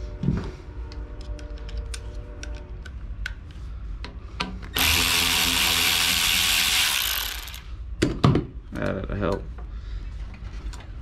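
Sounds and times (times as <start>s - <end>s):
electric ratchet motor whine: 4.8s - 7.7s.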